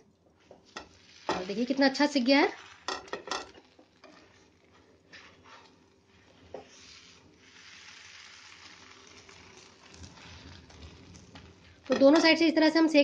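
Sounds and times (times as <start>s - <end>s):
faint steady sizzle: 0.0s - 13.0s
spatula tapping and scraping pan: 0.6s - 1.5s, 2.9s - 4.4s, 11.4s - 12.4s.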